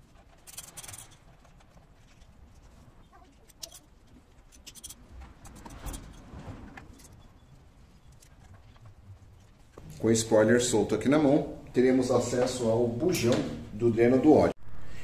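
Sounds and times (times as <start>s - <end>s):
allen key clicking and scraping bolts: 0.1s - 2.3s, 3.2s - 6.2s.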